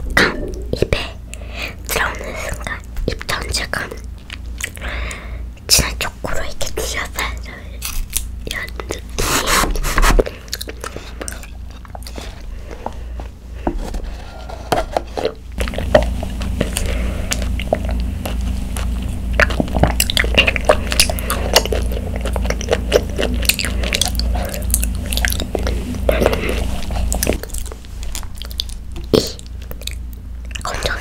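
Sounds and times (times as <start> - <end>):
chewing with mouth clicks: 2.5 - 5.2, 10.2 - 13.0, 15.2 - 31.0.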